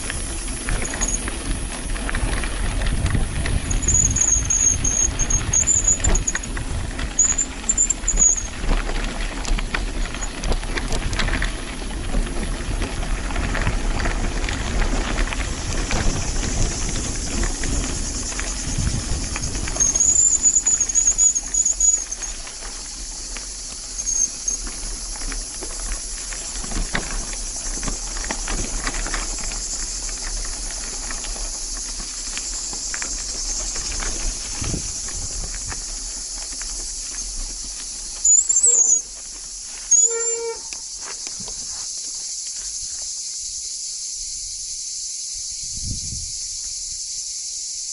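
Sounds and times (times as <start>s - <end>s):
low wind rumble: 0.0s - 38.2s, 45.5s - 46.6s
short high-pitched squeals: 3.7s - 6.5s, 7.1s - 8.6s, 19.8s - 22.4s, 38.2s - 39.1s, 39.9s - 40.9s.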